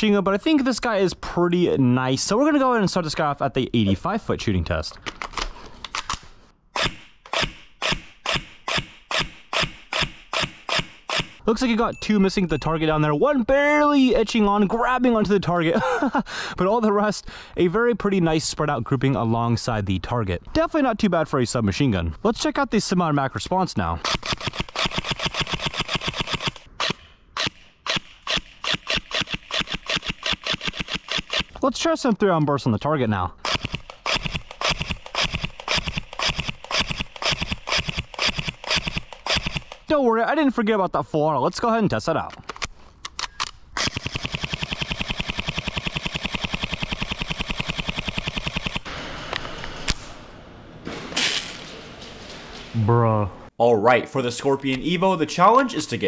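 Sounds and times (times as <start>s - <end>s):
airsoft gun rapid shots: 6.8s - 11.4s, 24.0s - 31.6s, 33.4s - 39.9s, 43.8s - 48.9s.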